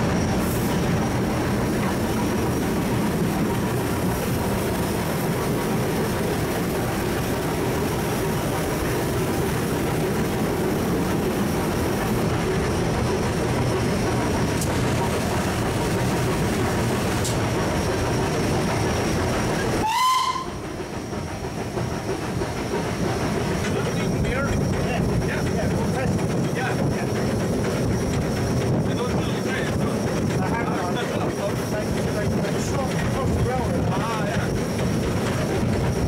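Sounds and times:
steam locomotive running noise: 0.0s - 36.0s
steam whistle blip: 19.8s - 20.6s.

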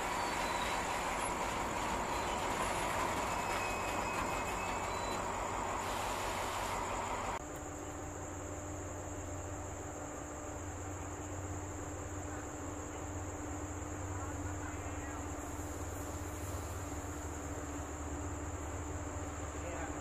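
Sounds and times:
faint wheel squeals: 0.0s - 7.4s
train wheels rumbling on rail: 0.0s - 7.4s, 12.8s - 20.0s
crickets chirping: 0.0s - 20.0s.

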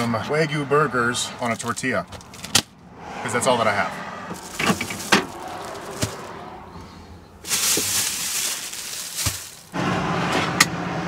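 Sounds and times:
plastic bag rustling: 4.3s - 6.4s, 7.3s - 9.8s.

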